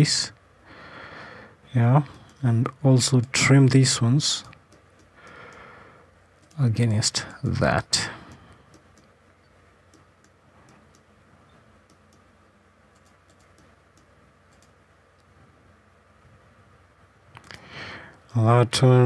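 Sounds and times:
low room hiss: 0.0s - 19.0s
computer mouse clicks: 8.3s - 9.2s, 9.9s - 11.1s, 11.8s - 12.3s, 12.9s - 15.3s.

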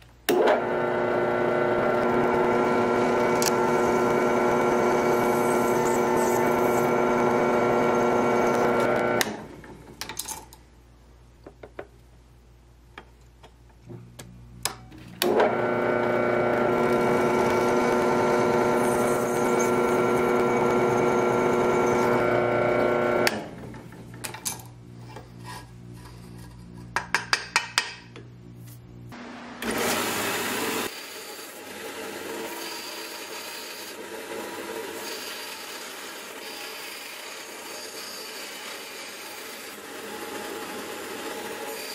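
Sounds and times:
drill press whining through steel: 0.3s - 9.5s, 15.2s - 23.5s.

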